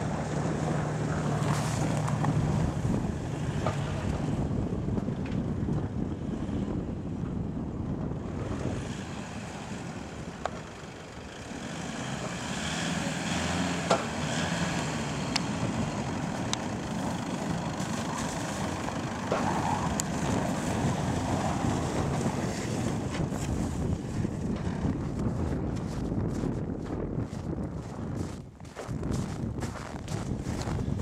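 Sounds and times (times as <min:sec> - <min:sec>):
pickup engine running: 0:13.1 - 0:29.2.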